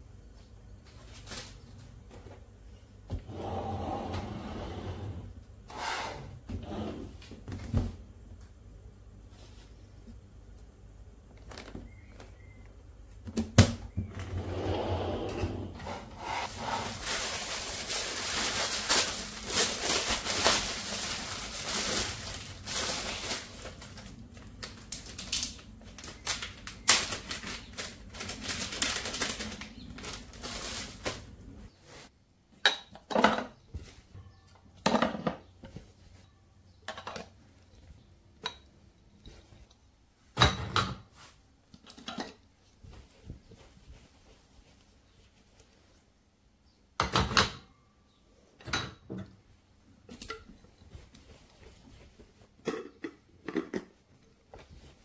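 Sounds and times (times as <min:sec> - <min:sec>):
plastic containers rustling and clattering: 0:11.2 - 0:12.6, 0:15.4 - 0:32.1, 0:32.8 - 0:44.1, 0:48.8 - 0:55.0.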